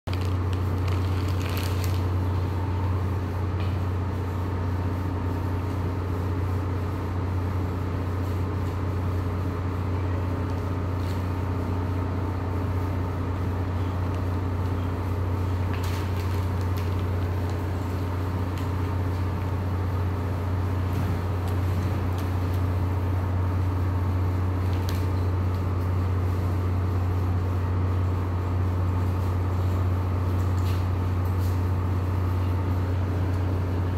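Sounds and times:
low machine hum: 0.0s - 33.9s.

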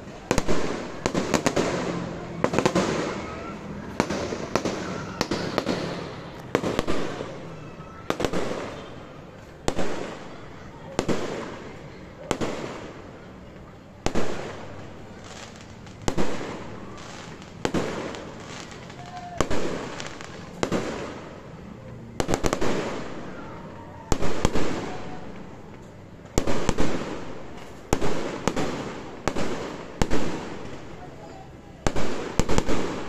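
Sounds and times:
fireworks bursting: 0.0s - 33.0s.

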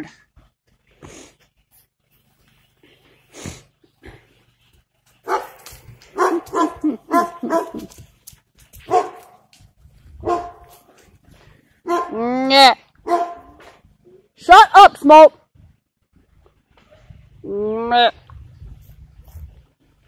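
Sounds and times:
dog barking: 5.2s - 5.6s, 6.2s - 7.9s, 8.9s - 9.4s, 10.2s - 10.7s, 11.8s - 12.2s, 13.0s - 13.6s.

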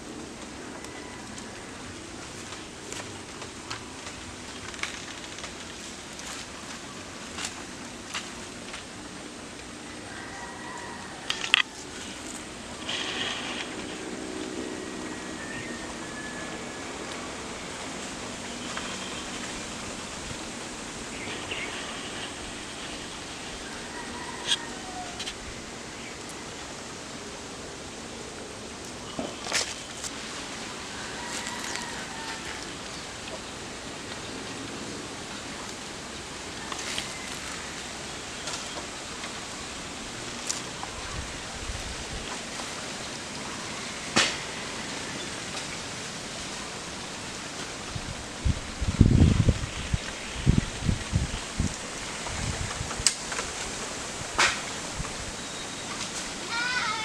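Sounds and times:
leaves rustling: 0.0s - 57.0s
outdoor hiss: 0.0s - 57.0s
stems snapping: 11.3s - 13.8s, 40.3s - 41.0s, 51.7s - 55.1s.

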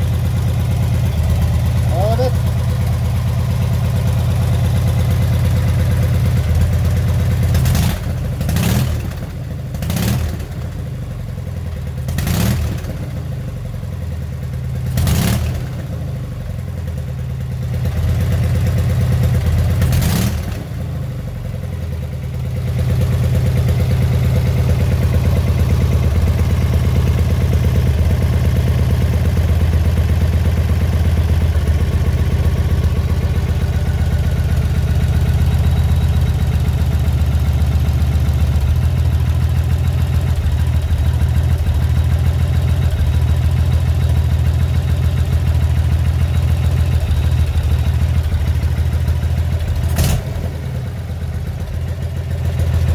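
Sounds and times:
motorcycle engine revving: 0.0s - 10.8s, 12.0s - 13.2s, 14.8s - 16.1s, 17.8s - 21.1s, 44.4s - 52.8s.

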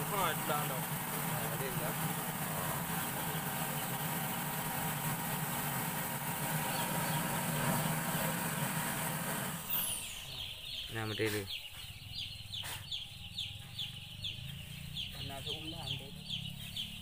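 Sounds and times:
forced-air heater running: 0.0s - 11.3s.

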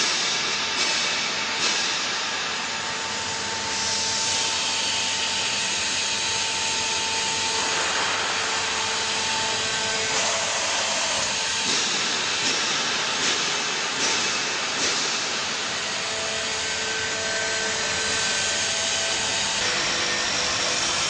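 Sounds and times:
hydraulic pump motor whining: 5.4s - 13.2s, 15.5s - 21.0s.

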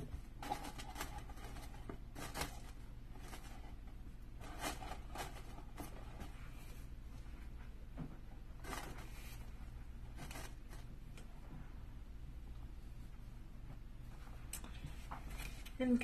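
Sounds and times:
steady low hum: 0.0s - 16.0s
handling scrapes and rustles: 0.2s - 7.6s, 8.5s - 11.0s.

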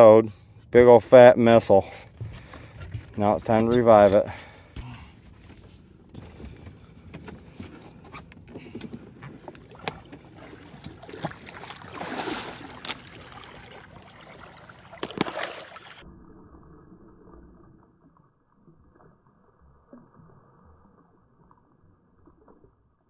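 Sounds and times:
water splashing against boat: 0.3s - 16.0s.

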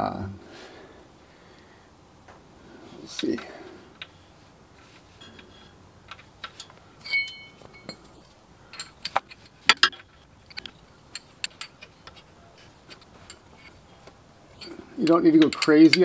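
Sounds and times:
metal clinks of hand tools: 5.2s - 12.2s, 12.9s - 16.0s.

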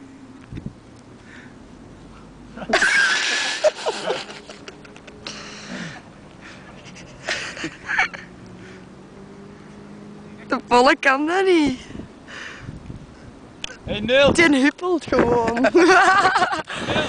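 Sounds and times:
person's breathy vocal sounds: 5.2s - 6.7s.

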